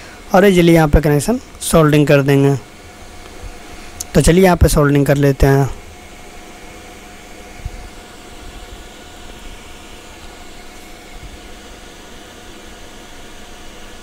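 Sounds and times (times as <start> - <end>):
room hum and hiss: 0.0 - 14.0.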